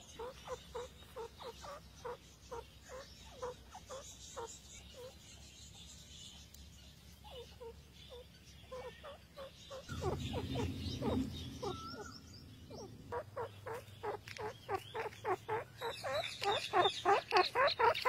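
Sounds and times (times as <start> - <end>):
bird giving downward-sliding clucks: 8.8 - 18.0
low hum: 9.8 - 14.4.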